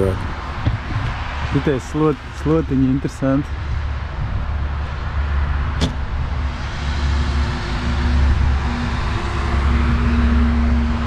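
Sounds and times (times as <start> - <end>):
diesel machinery rumbling: 0.0 - 11.0
steady hum: 6.0 - 11.0.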